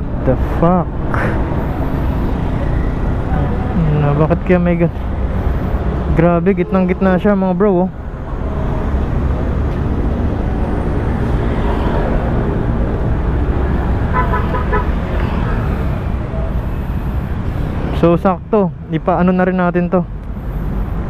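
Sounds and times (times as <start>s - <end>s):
street traffic rumble: 0.0s - 21.0s
vehicle horn beeps: 14.1s - 15.0s.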